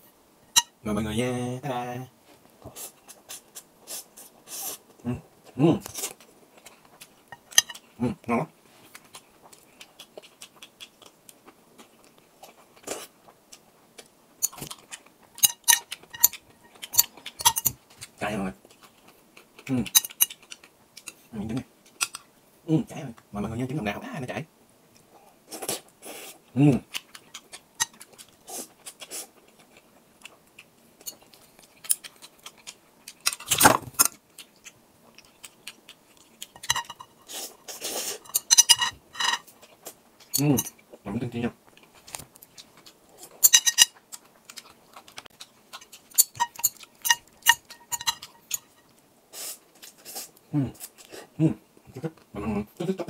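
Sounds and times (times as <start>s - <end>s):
chewing noodles: 8.8s - 22.3s, 25.0s - 38.8s, 41.6s - 51.3s
chopsticks clinking on glass bowl: 15.4s - 17.8s, 36.6s - 37.2s, 38.2s - 39.4s, 43.4s - 43.9s, 45.8s - 48.8s.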